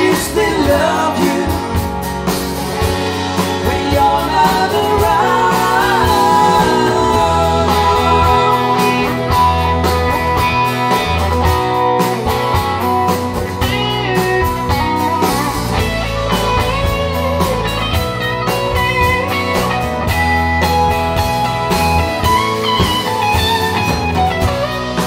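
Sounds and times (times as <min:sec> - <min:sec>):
acoustic guitars: 0:00.0 - 0:25.0
bass guitar: 0:00.0 - 0:25.0
drums: 0:00.0 - 0:25.0
electric guitar lead with bent notes: 0:00.0 - 0:25.0.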